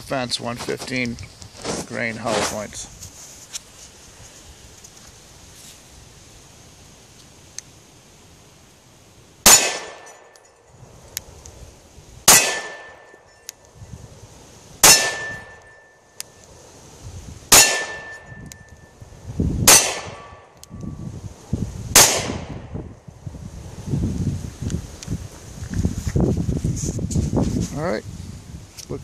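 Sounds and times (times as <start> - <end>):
pistol shots: 9.4 - 10.4, 12.3 - 13.2, 14.8 - 15.7, 17.5 - 18.4, 19.6 - 20.4, 21.9 - 22.5.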